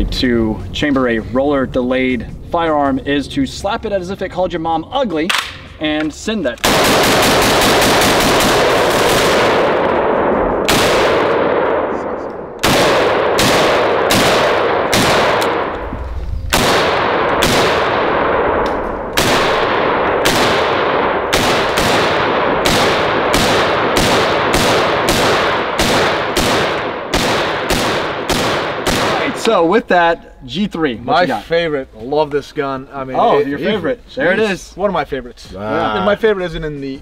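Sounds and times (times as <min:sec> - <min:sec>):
rifle shots with ringing echo: 0:06.6 - 0:15.9, 0:16.5 - 0:29.6.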